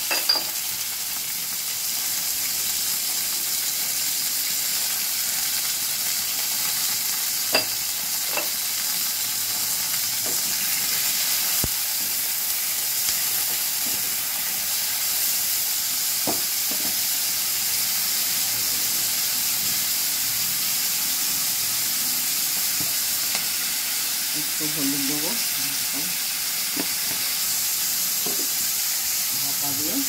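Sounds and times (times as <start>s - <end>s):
vegetables sizzling in oil: 0.0s - 30.0s.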